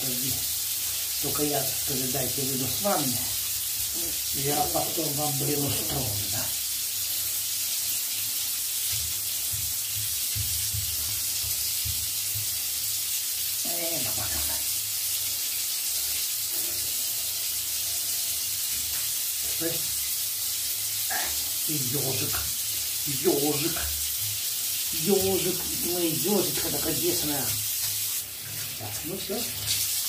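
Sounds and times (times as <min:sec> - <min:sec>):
running water in a bathtub: 0:00.0 - 0:30.0.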